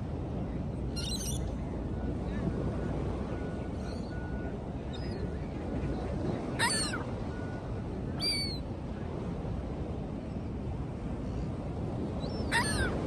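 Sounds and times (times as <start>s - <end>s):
surf: 0.0s - 13.0s
wind: 0.0s - 13.0s
gulls calling: 6.6s - 7.6s, 12.2s - 13.0s.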